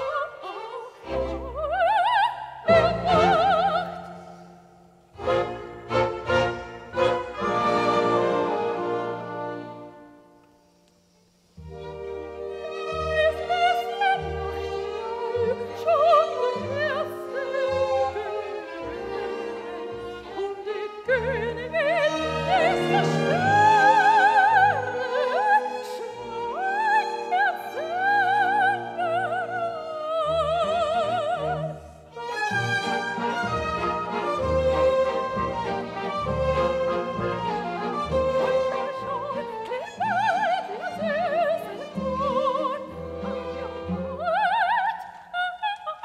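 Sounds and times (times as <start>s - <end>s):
soprano singing operatically: 0.0s - 4.2s, 12.8s - 32.0s, 33.0s - 46.0s
string orchestra: 0.0s - 46.0s.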